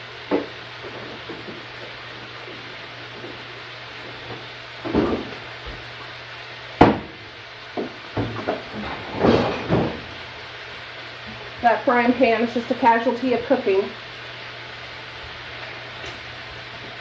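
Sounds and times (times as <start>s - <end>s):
knocks and rattles: 7.8s - 10.2s.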